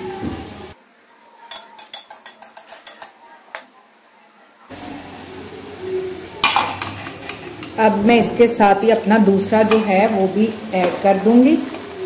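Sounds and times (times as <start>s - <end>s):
oil frying sizzle: 0.0s - 12.0s
metal spatula clicking on pan: 1.5s - 3.2s.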